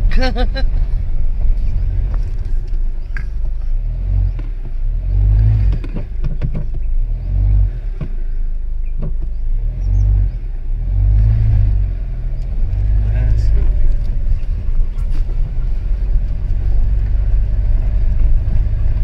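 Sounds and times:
car cabin rumble on rough track: 0.0 - 19.0
suspension knocks and thuds: 5.4 - 6.9, 7.9 - 8.3, 9.0 - 9.4.

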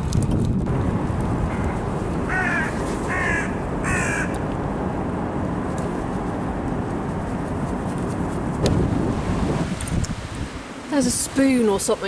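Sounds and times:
low wind rumble: 0.0 - 12.0
crow cawing: 2.3 - 4.4.

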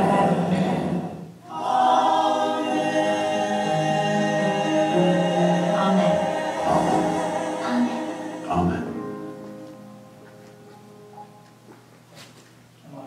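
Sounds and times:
choir singing a cappella: 0.0 - 9.2.

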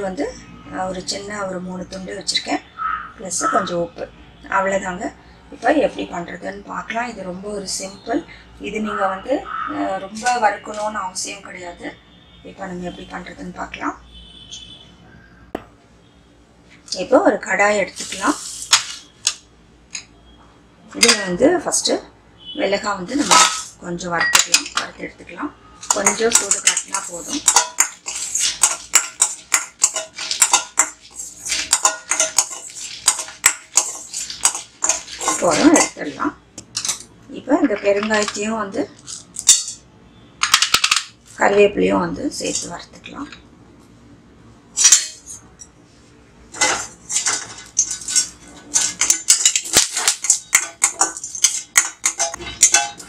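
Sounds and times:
ladle scraping metal pan: 17.9 - 19.1, 23.1 - 23.8, 25.8 - 37.0, 46.6 - 53.0.

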